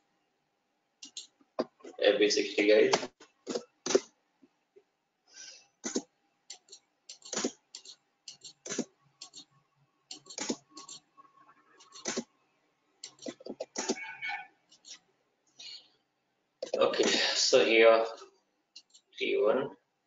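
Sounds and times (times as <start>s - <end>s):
mouse clicks: 1.0s - 1.3s, 5.9s - 9.5s.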